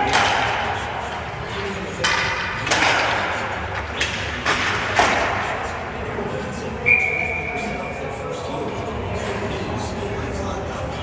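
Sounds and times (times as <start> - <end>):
hockey sticks hitting puck and boards: 0.0 - 5.8.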